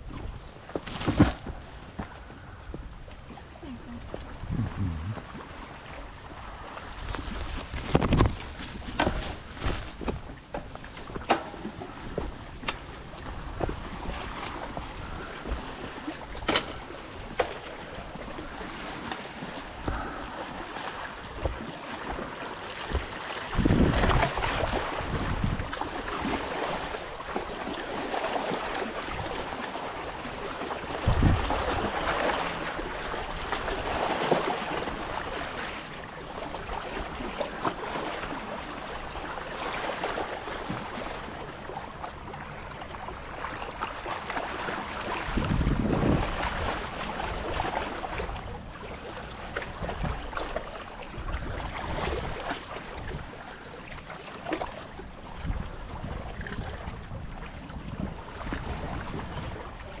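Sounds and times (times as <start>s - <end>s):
waves lapping on rocky shore: 3.5s - 60.0s
wind gusting on microphone: 3.6s - 9.6s, 23.0s - 25.8s, 31.0s - 32.0s, 45.2s - 48.4s.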